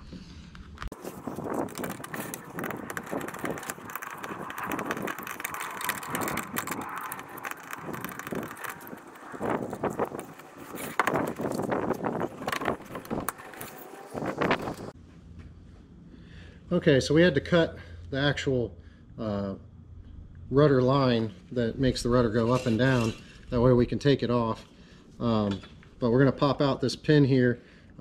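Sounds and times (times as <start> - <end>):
plastic rudder clicking and rattling: 0.9 - 15.0.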